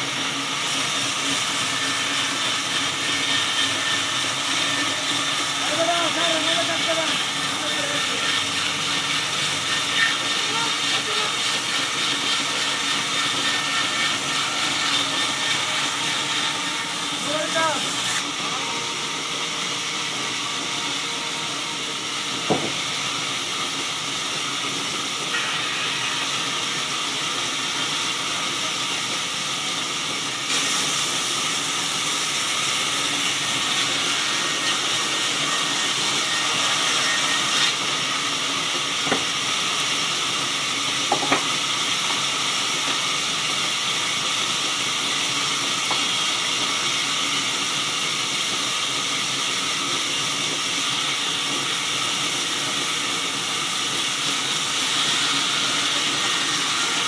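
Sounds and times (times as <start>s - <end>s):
band saw blade whine: 0.0s - 57.0s.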